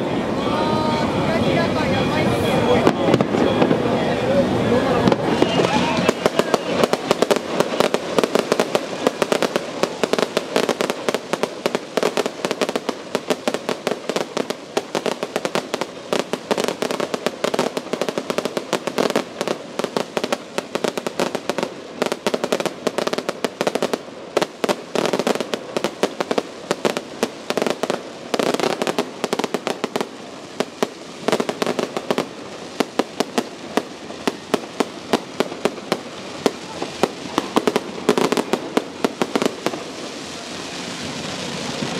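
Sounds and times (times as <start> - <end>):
fireworks bangs and crackling: 0.0 - 41.9.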